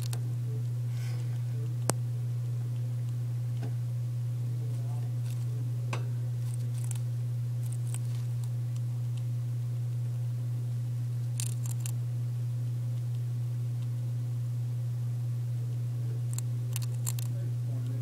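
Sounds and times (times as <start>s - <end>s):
hamster crunching cracker: 0.0s - 0.7s, 4.8s - 5.6s, 6.3s - 10.2s, 11.2s - 12.1s, 15.7s - 18.0s
steady low hum: 0.0s - 18.0s.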